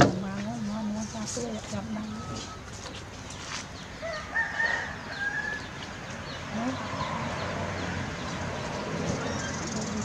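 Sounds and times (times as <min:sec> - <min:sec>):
rooster crowing: 0:04.0 - 0:05.7.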